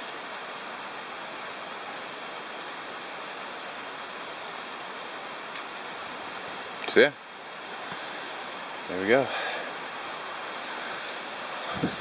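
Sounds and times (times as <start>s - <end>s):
faint small ticks: 0.0s - 0.4s, 1.3s - 1.5s, 4.7s - 6.0s
steady rushing noise: 0.0s - 12.0s.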